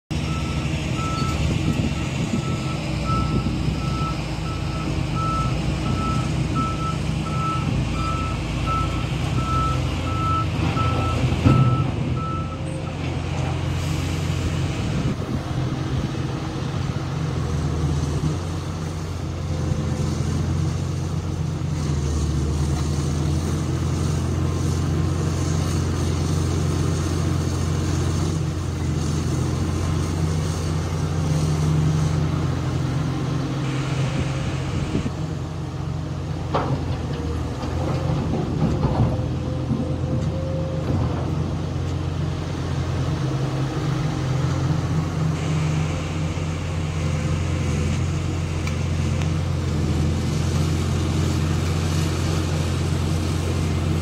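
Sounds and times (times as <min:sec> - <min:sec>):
heavy diesel engines running: 0:00.0 - 0:54.0
reversing alarm beeping: 0:00.2 - 0:12.8.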